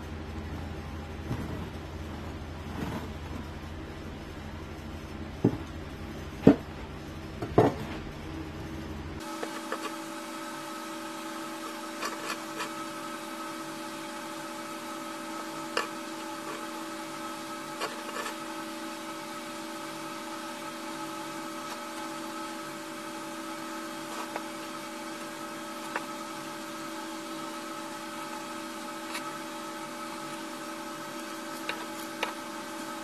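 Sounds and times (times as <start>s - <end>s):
steady machine hum: 0.0s - 33.0s
stick scraping on metal blade: 12.0s - 12.8s.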